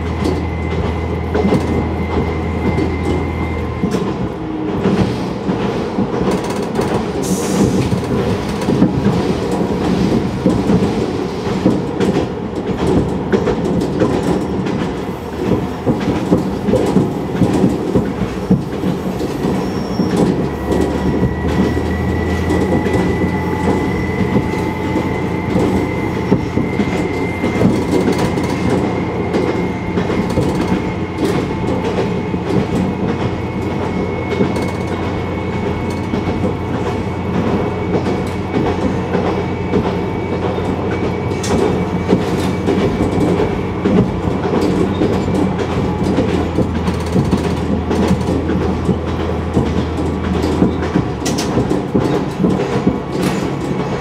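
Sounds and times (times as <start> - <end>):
railcar engine drone: 0.0 - 54.0
wheels clicking over rail joints: 0.0 - 54.0.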